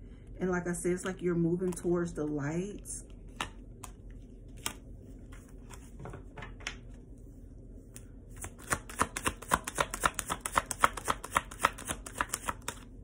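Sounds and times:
cards shuffling clicks: 8.4 - 12.9.

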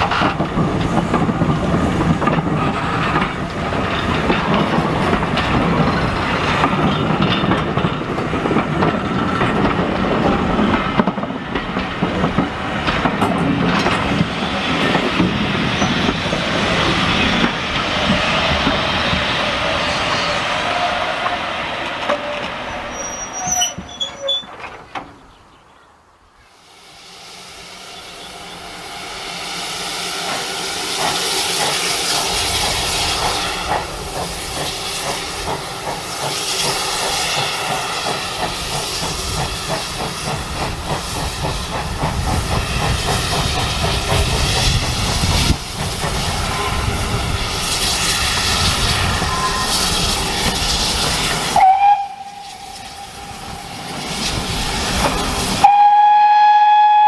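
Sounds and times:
train rumble: 0.0 - 25.3, 27.4 - 57.0
railway wheel clatter: 0.0 - 25.4, 28.2 - 57.0
steam hissing: 26.5 - 57.0.

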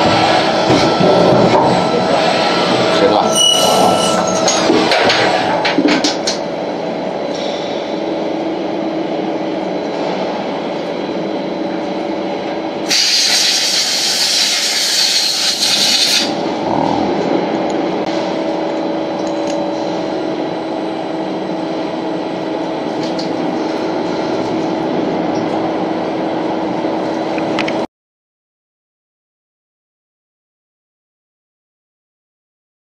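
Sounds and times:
lathe humming and whining: 0.0 - 12.9, 15.2 - 27.8
loud hiss: 12.9 - 16.3.

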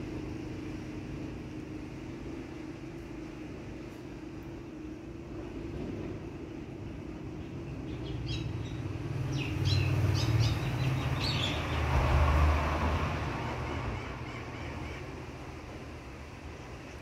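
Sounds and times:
small birds chirping: 6.8 - 12.0.

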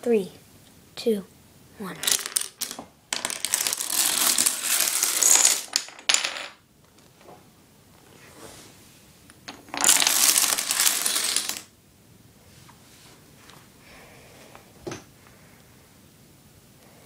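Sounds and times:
dominoes toppling on wooden floor: 2.0 - 6.6, 9.5 - 11.7.

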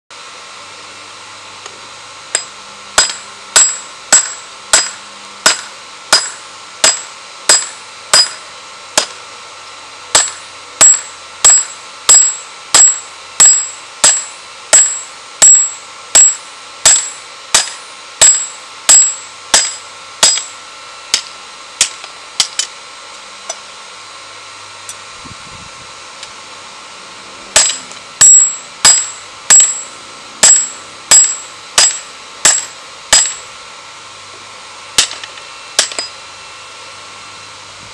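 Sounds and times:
hammer blows ringing on anvil: 2.4 - 9.2, 10.1 - 22.7, 27.5 - 33.4, 35.0 - 36.2.

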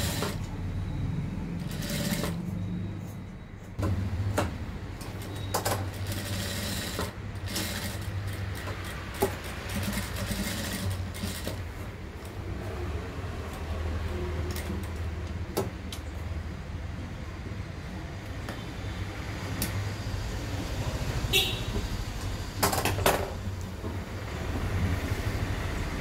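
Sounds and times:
sewing machine humming: 0.0 - 0.6, 1.3 - 2.7, 5.1 - 11.8.

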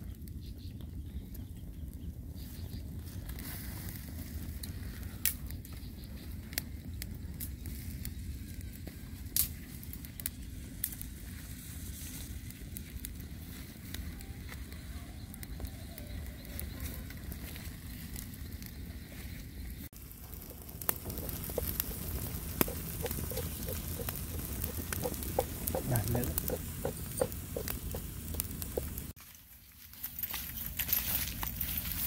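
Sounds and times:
wood fire crackling and popping: 0.0 - 32.0
faint sizzling: 18.6 - 29.2.

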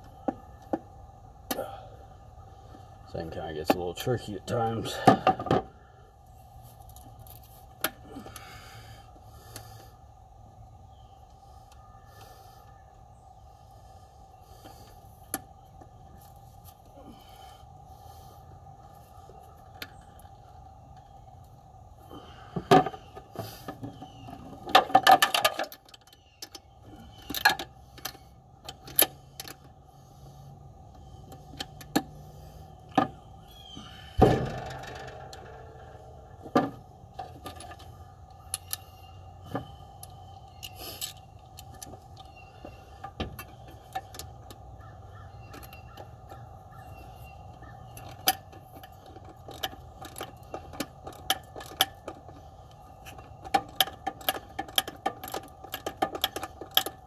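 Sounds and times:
steady hum: 0.0 - 44.8
metal tools clicking and clinking: 53.0 - 57.0.

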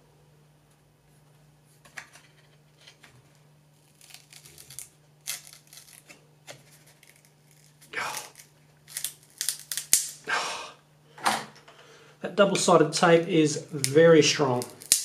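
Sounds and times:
tape tearing loose crackling: 3.8 - 10.2, 13.8 - 15.0.

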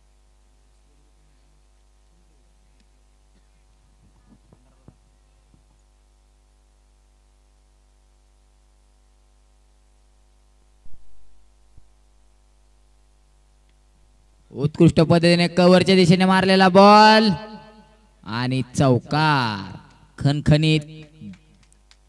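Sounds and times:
electrical mains hum: 0.0 - 22.0
loud thump: 10.8 - 11.9.

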